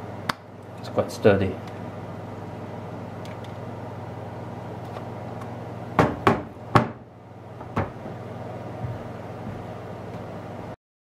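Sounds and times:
steady low hum: 0.0s - 10.8s.

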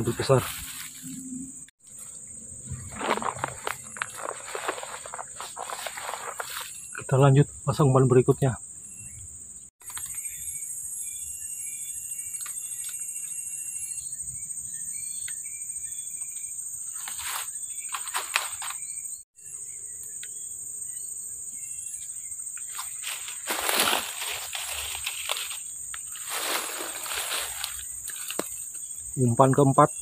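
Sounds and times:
grass and reeds rustling: 0.0s - 7.0s, 16.9s - 18.8s, 22.6s - 28.8s.

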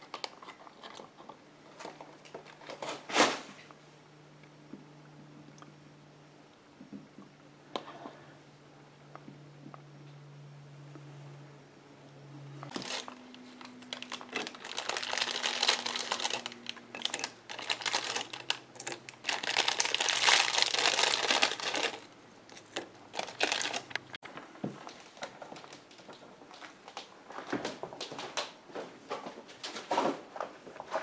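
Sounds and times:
faint low hum: 0.0s - 31.0s
crinkling rustling handling noise: 12.7s - 31.0s.

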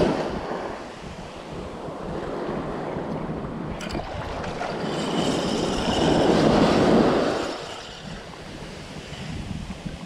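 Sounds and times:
quieter surf: 0.0s - 10.0s
wave washing up sand: 0.0s - 10.0s.

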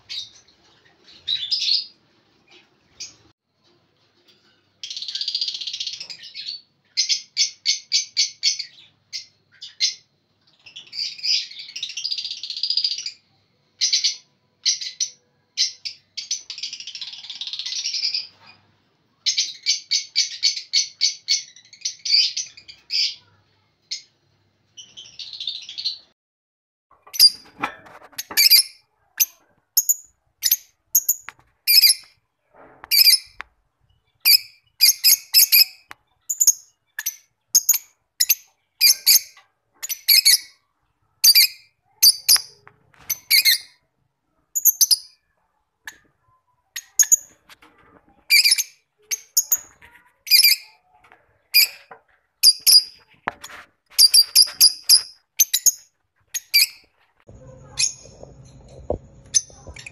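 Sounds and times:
lovebirds chirping chatter: 4.3s - 26.2s, 27.1s - 32.2s, 32.9s - 59.9s.

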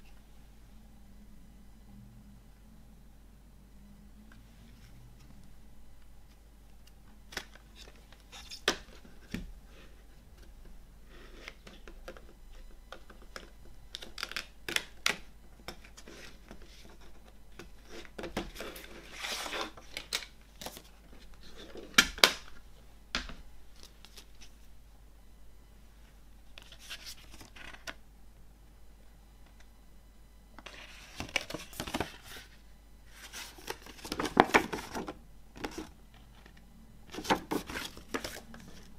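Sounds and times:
booklet sliding scrape: 17.8s - 19.8s, 33.1s - 35.0s.

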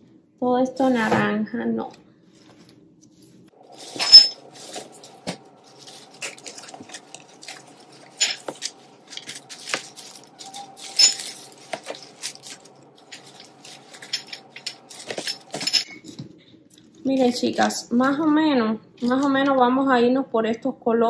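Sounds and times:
artificial leaves rustling: 2.3s - 15.8s.

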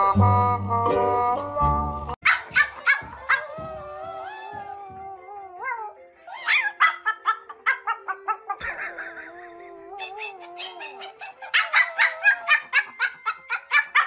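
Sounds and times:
background music: 0.0s - 14.0s
small dog yipping: 2.3s - 4.8s, 5.6s - 8.5s, 10.0s - 14.0s
dog howling: 2.8s - 6.8s, 8.4s - 13.0s.

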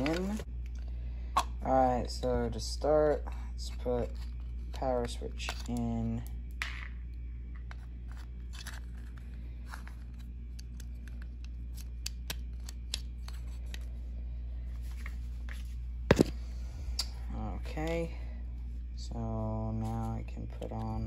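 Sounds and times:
sharp plastic snaps: 10.6s - 13.4s.

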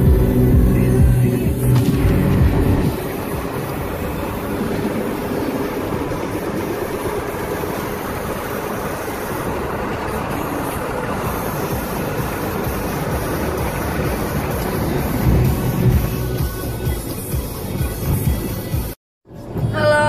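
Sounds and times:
car road and wind noise: 0.0s - 20.0s.

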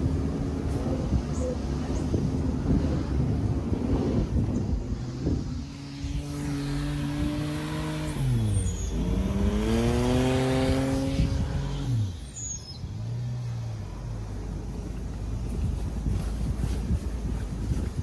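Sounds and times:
car engine revving: 2.6s - 15.6s.

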